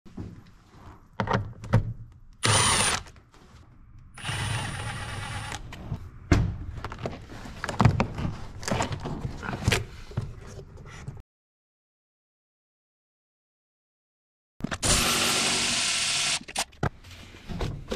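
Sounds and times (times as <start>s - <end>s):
cordless power tool running: 14.8s - 16.4s.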